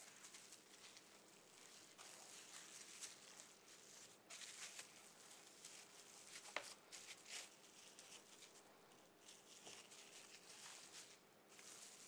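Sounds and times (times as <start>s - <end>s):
cling film crinkling: 0.0s - 8.6s.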